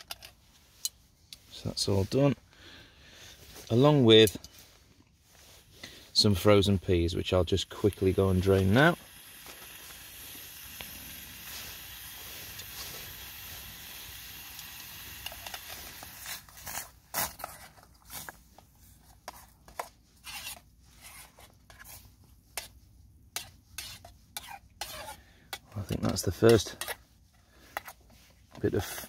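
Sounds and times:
stove pot hissing: 6.2 - 16.5.

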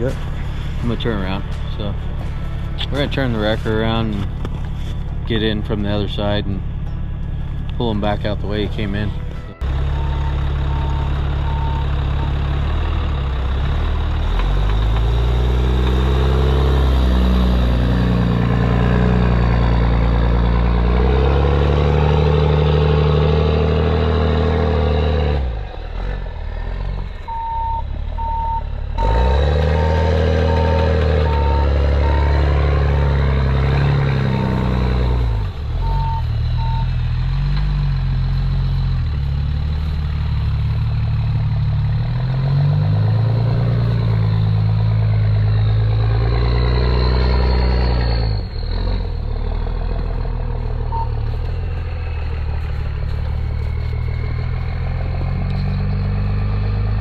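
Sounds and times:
truck engine revving: 0.0 - 57.0
reversing alarm beeps: 9.5 - 12.4, 27.3 - 28.7, 29.8 - 32.6, 35.8 - 37.0, 50.9 - 51.2.

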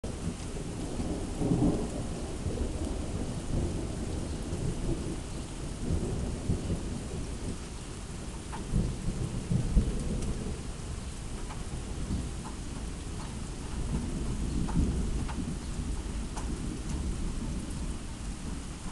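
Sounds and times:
heavy rain falling: 0.0 - 18.9.

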